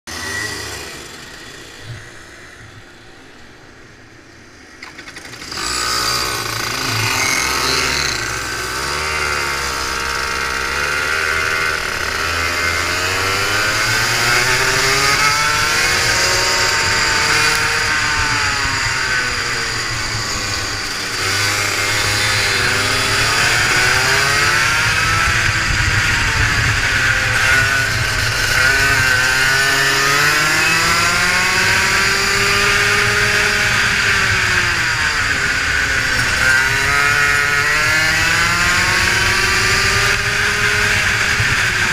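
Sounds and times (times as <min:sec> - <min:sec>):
kart engine revving: 0:00.1 - 0:41.9.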